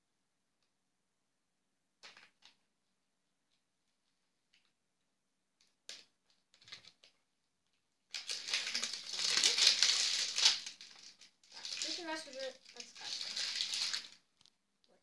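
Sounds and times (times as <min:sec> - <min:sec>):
plastic wrapping crinkling and tearing: 0:05.8 - 0:07.2, 0:08.1 - 0:15.0.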